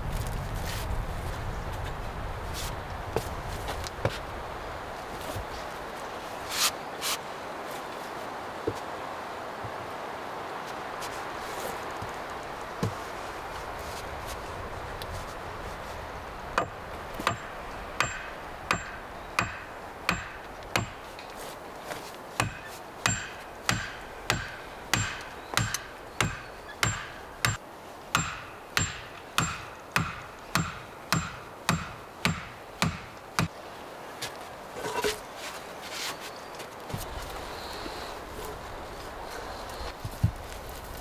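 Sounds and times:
hatchet striking wood: 0:16.6 - 0:21.1, 0:22.4 - 0:27.6, 0:28.2 - 0:33.5.

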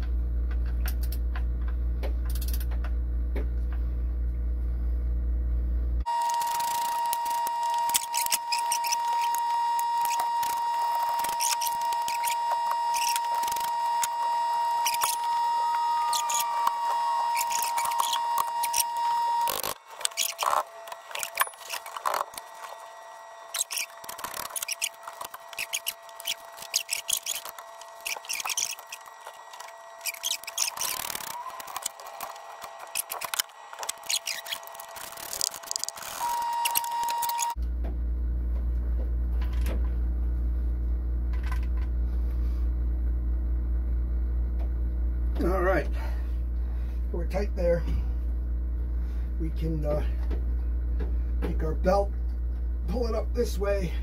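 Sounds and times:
high-pitched whine: 0:06.0 - 0:37.7.

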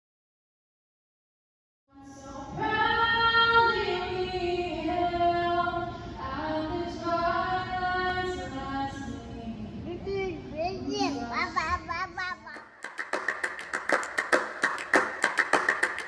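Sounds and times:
woman singing unaccompanied: 0:01.9 - 0:10.5.

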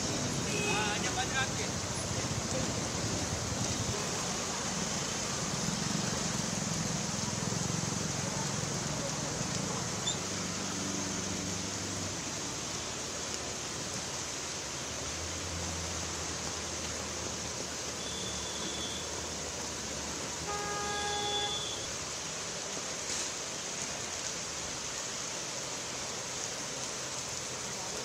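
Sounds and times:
heavy rain on a street: 0:00.0 - 0:28.0
vehicle horn honking: 0:18.0 - 0:19.1, 0:20.4 - 0:21.9.

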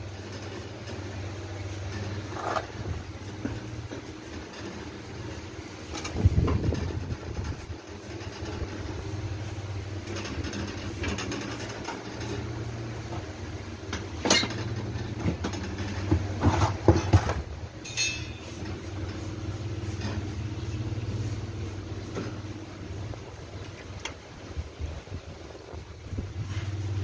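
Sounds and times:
low machine hum: 0:00.0 - 0:27.0
metallic knocks and clatters: 0:10.0 - 0:12.5, 0:13.9 - 0:19.2.

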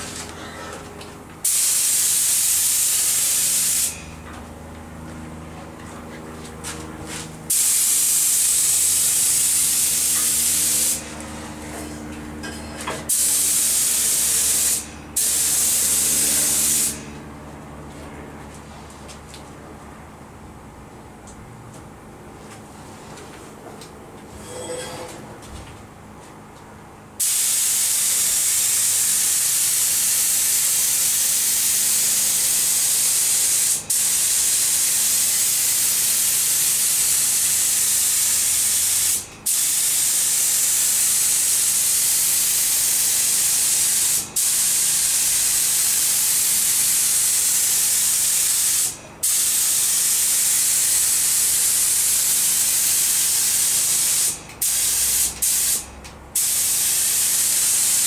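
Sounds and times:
paint spray gun hissing: 0:01.4 - 0:04.0, 0:07.5 - 0:11.1, 0:13.1 - 0:17.0, 0:27.2 - 0:58.0.

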